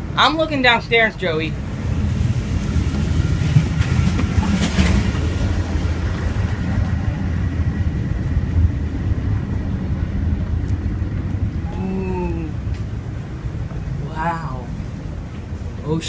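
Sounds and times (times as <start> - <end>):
train rumbling on rails: 0.0 - 16.0.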